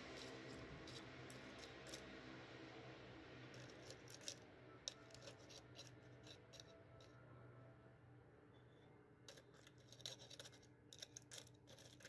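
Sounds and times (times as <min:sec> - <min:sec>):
metal rod clicking and scraping: 0:00.2 - 0:02.1, 0:03.6 - 0:07.1, 0:09.3 - 0:12.0.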